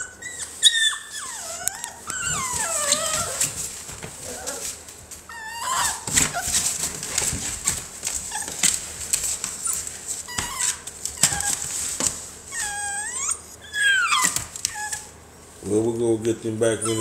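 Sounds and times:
puppy yelping: 0.0 - 3.6, 4.2 - 4.7, 5.3 - 8.7, 9.6 - 11.8, 12.5 - 15.2, 16.7 - 17.0
puppy whining: 0.0 - 8.8, 9.5 - 15.2, 16.6 - 17.0.

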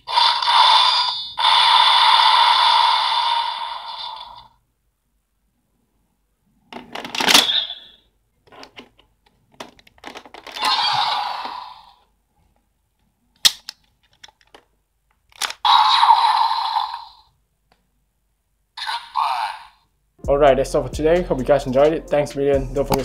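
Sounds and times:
toy electronic sound effects: 0.0 - 4.5, 7.3 - 8.1, 10.5 - 12.0, 15.5 - 17.3, 18.8 - 19.8.

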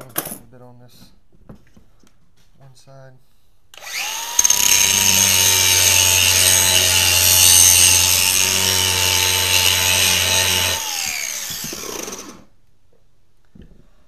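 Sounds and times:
angle grinder grinding steel: 3.8 - 12.5
grinder motor spinning down: 3.8 - 12.5.

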